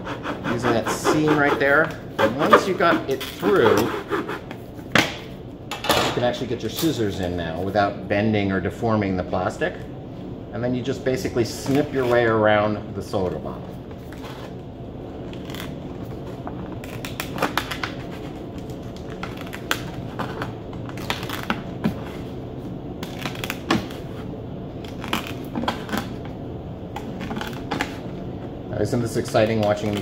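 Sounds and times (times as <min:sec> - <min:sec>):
scissors snipping plastic: 0:29.2 - 0:30.0.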